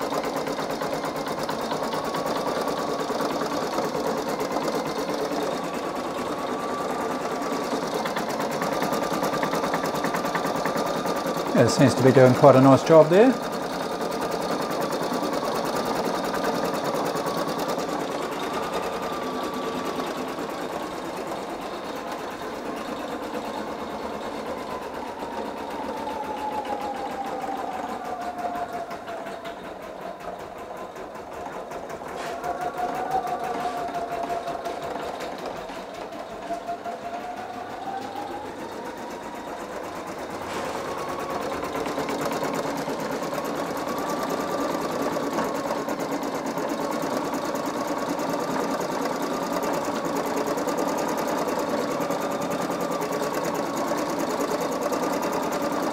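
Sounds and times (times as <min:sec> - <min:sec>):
embroidery machine needle patter: 0:00.0 - 0:37.5, 0:38.7 - 0:55.9
motor whine: 0:23.9 - 0:46.2.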